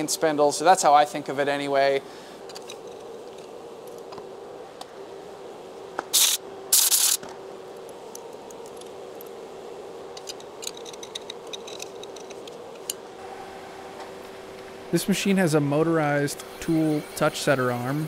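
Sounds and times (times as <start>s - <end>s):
steady machine hum: 0.0s - 18.0s
compressed air blow gun blasts: 6.0s - 7.3s.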